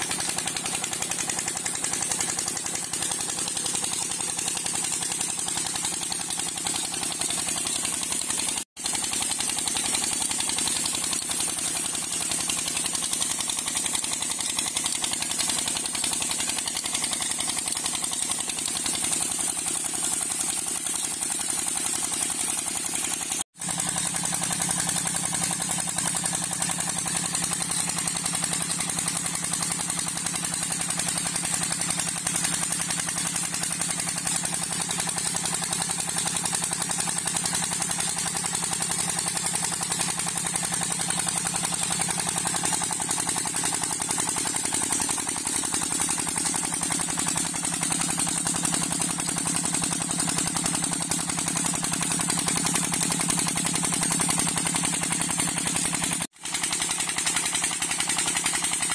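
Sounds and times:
diesel engine chugging: 0:00.0 - 0:58.8.

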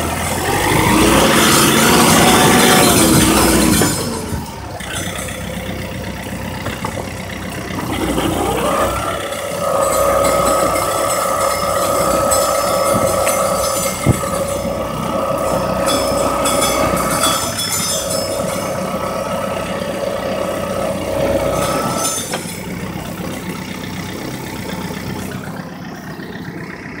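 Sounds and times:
tractor engine running: 0:00.0 - 0:27.0
metallic clanging: 0:00.4 - 0:25.6.

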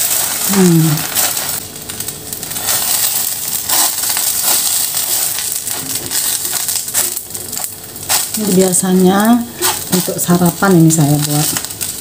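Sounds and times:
batter sizzling in a frying pan: 0:00.0 - 0:12.0
spatulas scraping and tapping pan: 0:02.5 - 0:08.6, 0:09.5 - 0:10.2.

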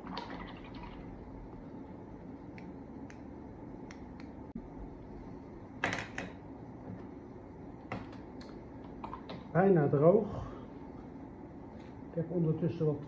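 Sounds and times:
low steady background noise: 0:00.0 - 0:13.0.

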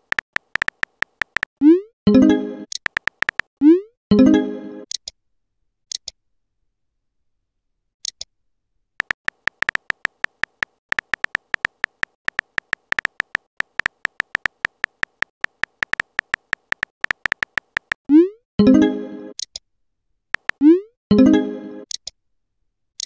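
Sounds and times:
clicky keyboard typing beeps: 0:00.0 - 0:01.5, 0:02.1 - 0:03.5, 0:09.0 - 0:18.0, 0:20.4 - 0:20.8
high click: 0:02.7 - 0:03.5.

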